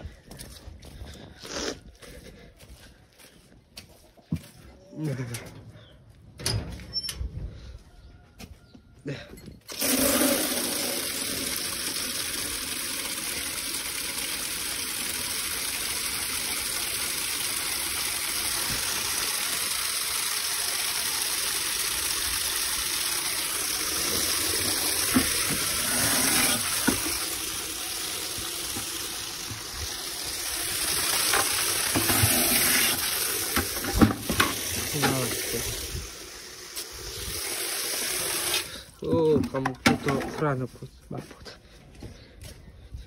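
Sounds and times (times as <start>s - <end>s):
water jet spraying: 9.7s - 38.8s.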